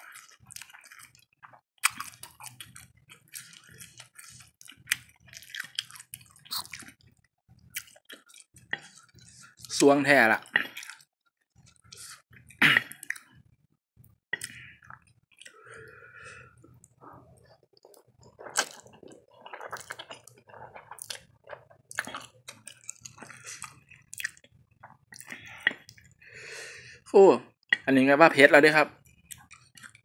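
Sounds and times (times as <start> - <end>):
person chewing and slurping noodles: 0.1 - 9.8, 10.4 - 11.0, 14.4 - 26.2.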